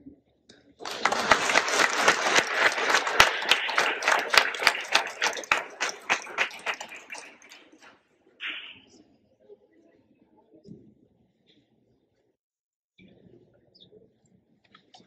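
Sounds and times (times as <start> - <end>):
audience applauding: 0.8 - 7.9.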